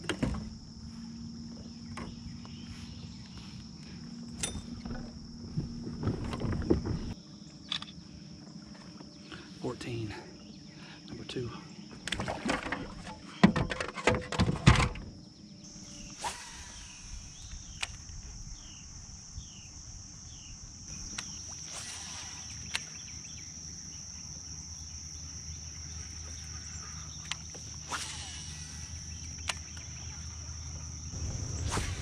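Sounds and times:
insects droning: 0.0 - 32.0
knocks and clatter on a kayak: 4.5 - 7.2, 11.9 - 15.2.

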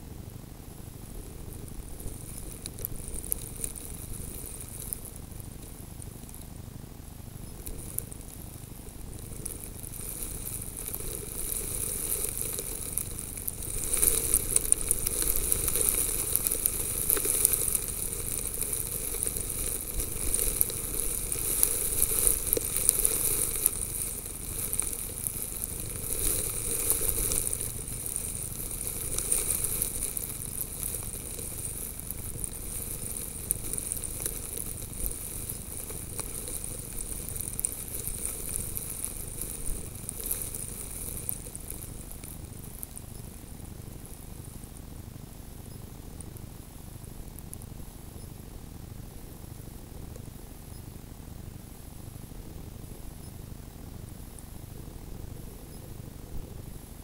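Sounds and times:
snow grains pattering on camera: 0.7 - 57.0.

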